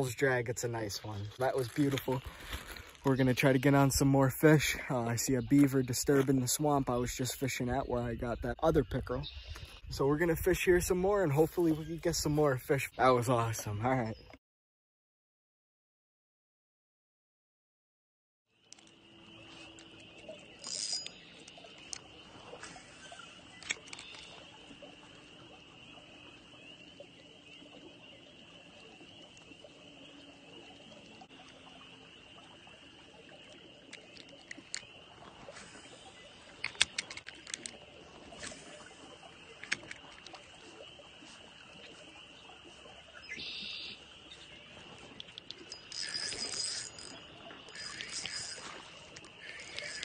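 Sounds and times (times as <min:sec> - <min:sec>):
fishing reel clicks: 0:20.6 - 0:22.0, 0:45.2 - 0:50.0
high-pitched animal chorus: 0:41.9 - 0:50.0.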